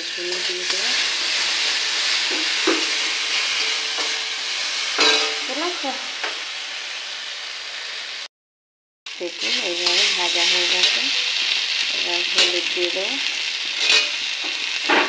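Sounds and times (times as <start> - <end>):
food sizzling in hot oil: 0.0 - 8.3, 9.1 - 15.0
metal spatula scraping pan: 0.1 - 5.8, 9.4 - 12.9, 13.6 - 14.8.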